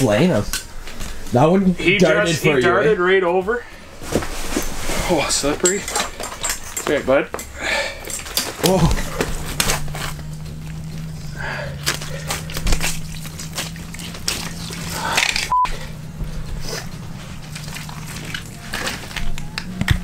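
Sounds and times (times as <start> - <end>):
steady low hum: 0.0 - 20.0
fish being handled: 8.6 - 15.5, 16.3 - 19.6.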